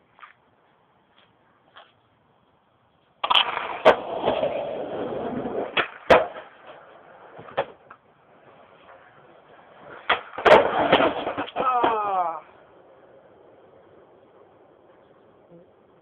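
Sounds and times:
skateboard wheels rolling on concrete: 0.0s - 16.0s
skateboard hitting ground: 3.2s - 15.2s.

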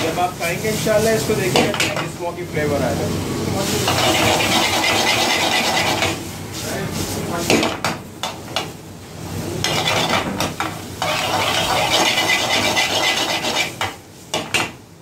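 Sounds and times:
vegetables sizzling: 3.5s - 6.5s, 9.5s - 14.0s
metal ladle scraping a wok: 3.8s - 6.2s, 9.6s - 10.2s, 11.0s - 13.9s.

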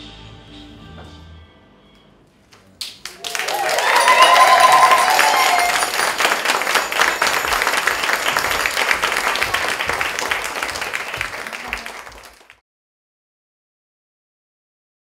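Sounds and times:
audience applauding: 2.8s - 12.6s.

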